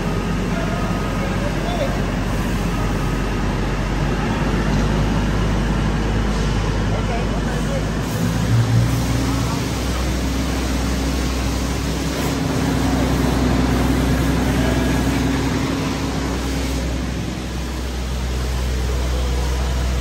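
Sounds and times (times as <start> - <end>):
pressure washer water spray: 6.2 - 20.0.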